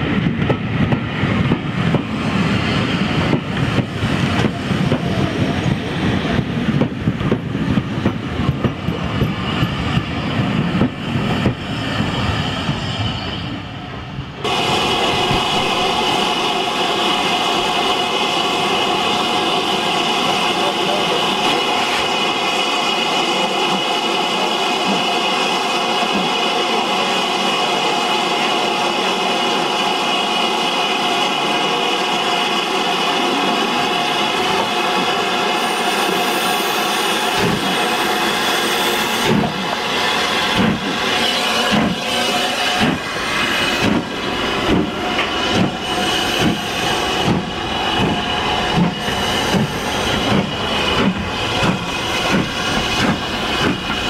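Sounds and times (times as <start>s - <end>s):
steam locomotive exhaust chuffs: 0.0s - 54.0s
steam hissing: 14.4s - 54.0s.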